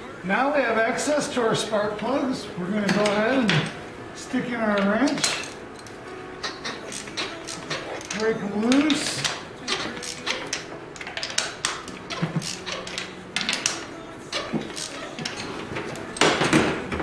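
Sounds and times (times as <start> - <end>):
wrench clicking against metal: 4.8 - 16.3.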